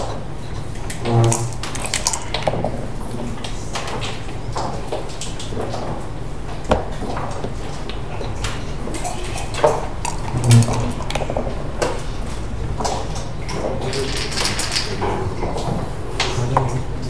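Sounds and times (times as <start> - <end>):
checkers clacking on board: 8.9 - 12.2, 12.8 - 15.2.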